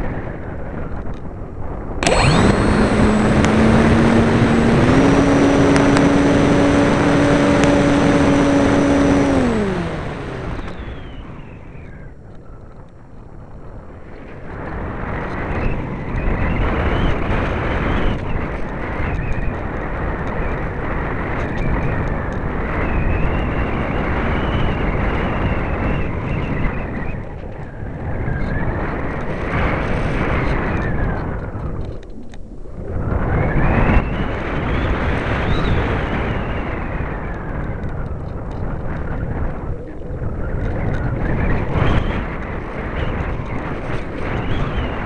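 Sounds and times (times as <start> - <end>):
wind noise on microphone: 0.0 - 45.0
electric motor and propeller whining: 2.0 - 12.0, 21.3 - 45.0.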